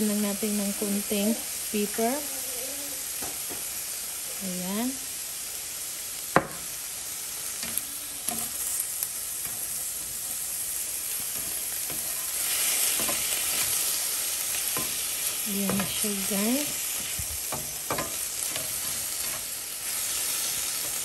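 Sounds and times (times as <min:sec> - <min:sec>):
meat and onions sizzling in a pan: 0:00.0 - 0:21.0
spatula stirring in a pan: 0:06.3 - 0:21.0.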